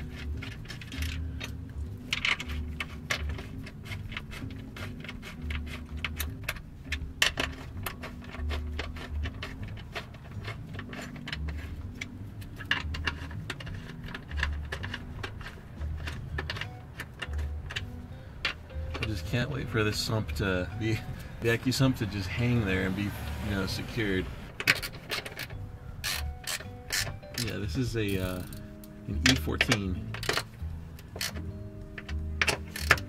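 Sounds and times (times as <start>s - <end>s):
metallic tool clicks and clinks: 24.6s - 28.6s.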